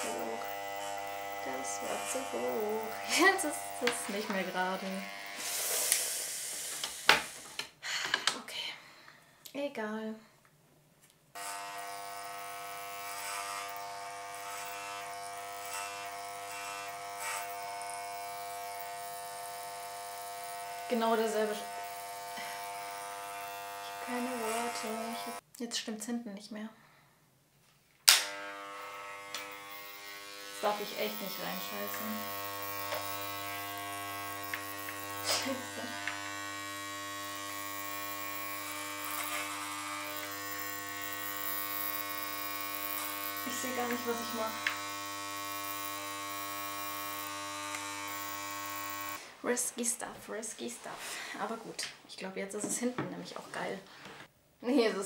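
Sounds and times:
electric hair clipper buzzing: 0:00.0 - 0:07.6, 0:11.4 - 0:25.4, 0:28.0 - 0:49.4.

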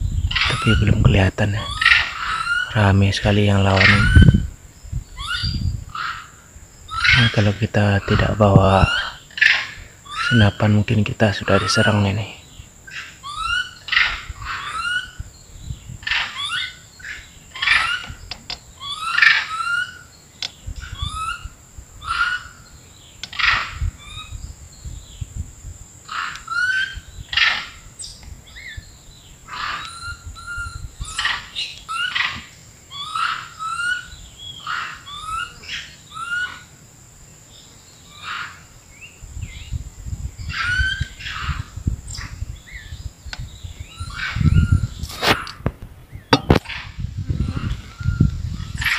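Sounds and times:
high insect whine: 0:00.0 - 0:48.9
monkeys calling: 0:00.3 - 0:04.4, 0:05.1 - 0:15.2, 0:16.0 - 0:20.1, 0:20.8 - 0:24.4, 0:26.1 - 0:27.9, 0:29.5 - 0:36.8, 0:40.5 - 0:42.8, 0:43.9 - 0:45.6, 0:46.4 - 0:48.9.

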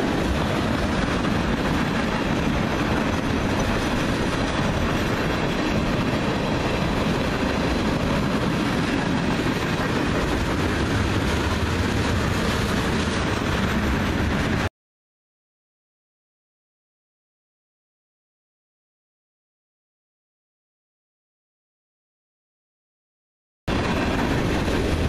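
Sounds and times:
freight train rolling past: 0:00.0 - 0:14.7, 0:23.7 - 0:25.0.

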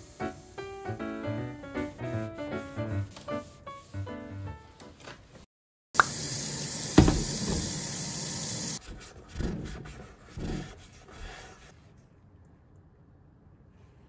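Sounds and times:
tap water running into sink: 0:06.0 - 0:08.8
knock: 0:07.0 - 0:07.8.

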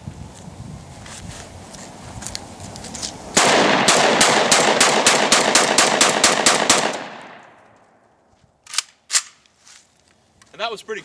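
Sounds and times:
shotgun firing rapidly: 0:03.4 - 0:07.4.

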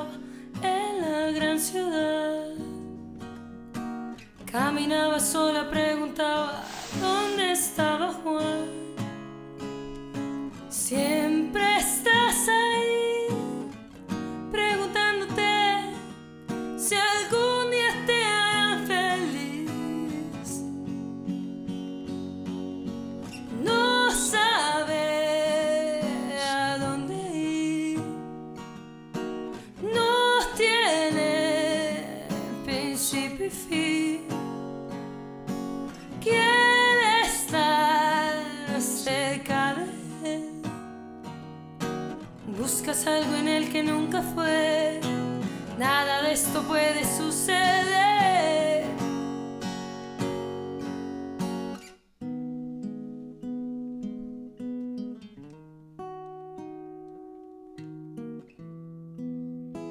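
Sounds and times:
woman singing a slow ballad: 0:00.0 - 0:03.0, 0:04.4 - 0:09.8, 0:10.5 - 0:21.0, 0:23.5 - 0:28.7, 0:29.6 - 0:35.0, 0:36.1 - 0:40.8, 0:42.4 - 0:49.2
acoustic guitar: 0:00.0 - 0:59.9.

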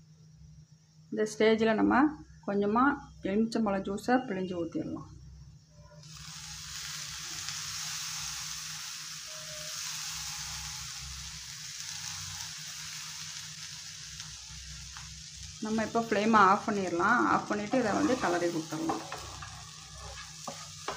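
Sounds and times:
potatoes sizzling in a pan: 0:06.0 - 0:20.9.

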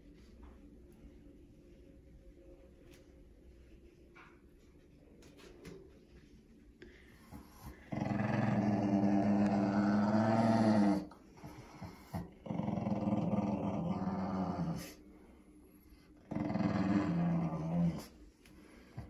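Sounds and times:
small dog growling: 0:07.5 - 0:15.0, 0:16.2 - 0:18.2.

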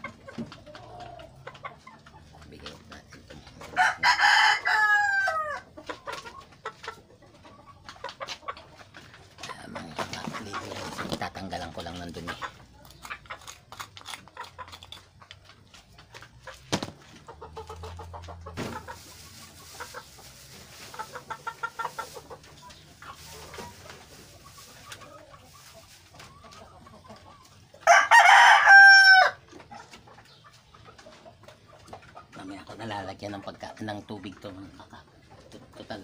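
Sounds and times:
chickens clucking: 0:00.0 - 0:36.0
rooster crowing: 0:03.8 - 0:05.6, 0:27.8 - 0:29.4.

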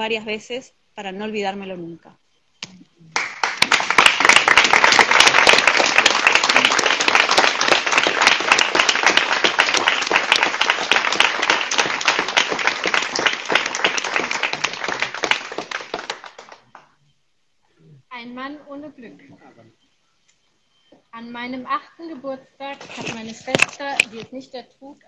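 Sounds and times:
audience applauding: 0:03.2 - 0:17.0.

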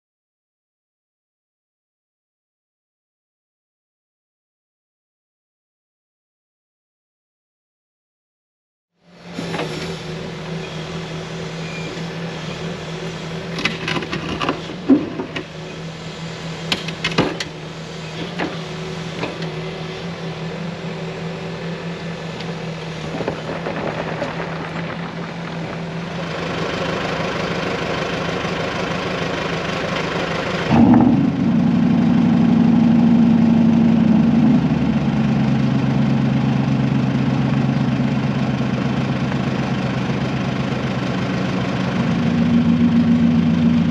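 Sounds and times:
excavator diesel engine running: 0:09.0 - 0:43.9.

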